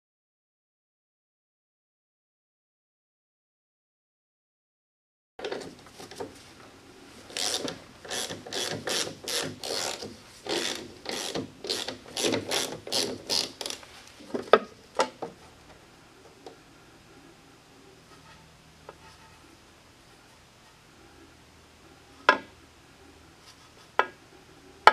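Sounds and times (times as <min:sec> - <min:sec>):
ratchet wrench ratcheting: 0:07.3 - 0:13.8.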